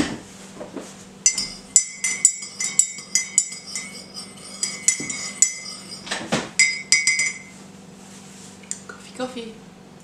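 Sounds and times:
teaspoon clinking in ceramic mug: 1.3 - 7.5.

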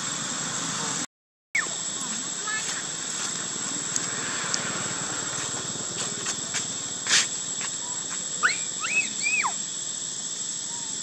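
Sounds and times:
steady high-pitched whine: 0.0 - 11.0
young monkey squealing: 8.4 - 9.6.

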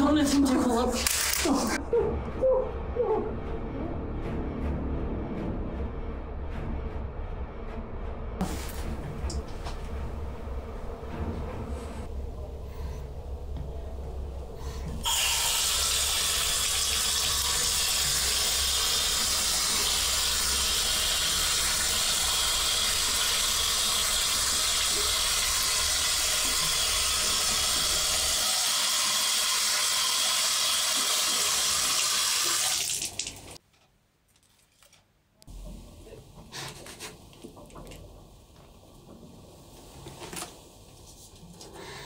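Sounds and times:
tap water running into sink: 15.0 - 33.6
hands washing under water: 15.1 - 33.6.

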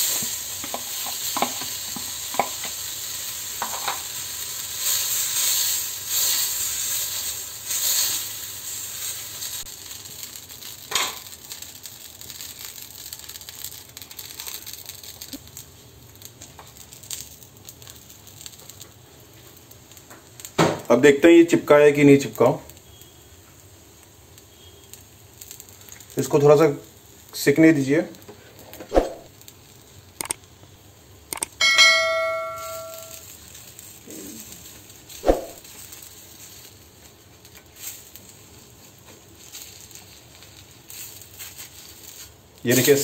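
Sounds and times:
batter sizzling on a hot pan: 0.0 - 43.0
ladle clicks: 30.2 - 30.4.

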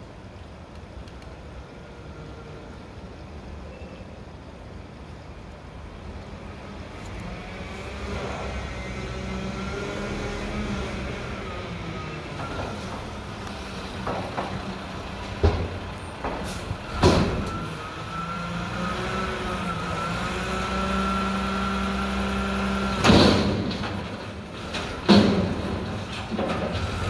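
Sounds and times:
garbage truck diesel engine: 5.1 - 27.0
loud metal bangs and clanks: 15.3 - 17.7, 23.0 - 27.0.

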